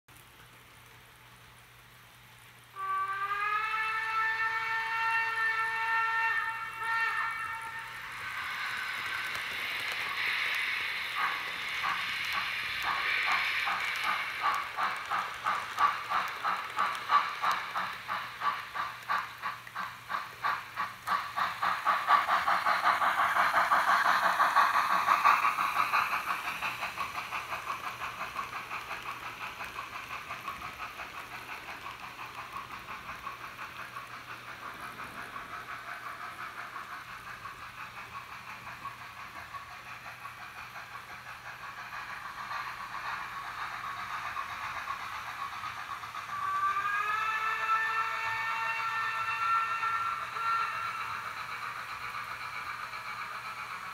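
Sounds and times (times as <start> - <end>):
steam hissing: 0.2 - 53.9
steam locomotive exhaust chuffs: 0.2 - 53.9
steam whistle: 2.7 - 9.9, 46.3 - 51.2.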